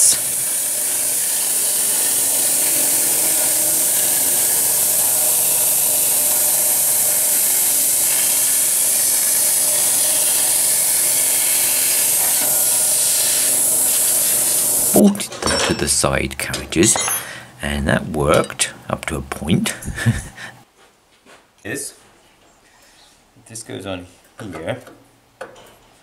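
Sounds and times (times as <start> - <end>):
plasma cutter hissing: 0.0 - 15.1.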